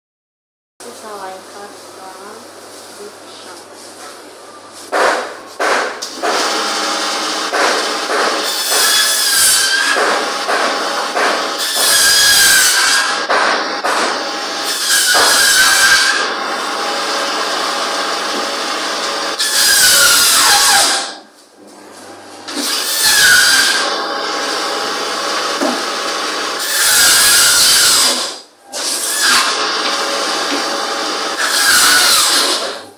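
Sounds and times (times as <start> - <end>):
band saw humming: 4.6 - 21.2, 21.8 - 32.9
saw blade screeching through bone: 8.4 - 10.2, 11.6 - 13.2, 14.7 - 16.3, 19.4 - 21.2, 22.6 - 23.9, 26.6 - 29.6, 31.4 - 32.8.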